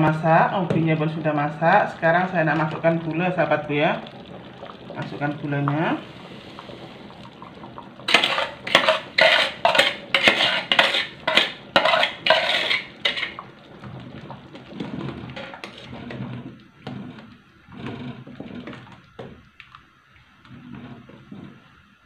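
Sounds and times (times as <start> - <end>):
ladle stirring thick liquid: 0.0 - 22.0
metal utensils scraping in pot: 8.1 - 13.5, 14.8 - 18.9.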